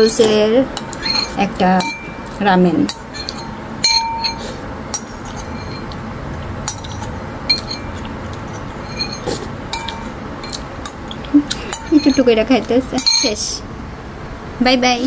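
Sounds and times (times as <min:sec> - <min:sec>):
metal spoon clinking ceramic bowl: 0:00.8 - 0:06.0, 0:06.7 - 0:08.1, 0:08.8 - 0:10.6, 0:11.6 - 0:12.4, 0:13.0 - 0:13.4.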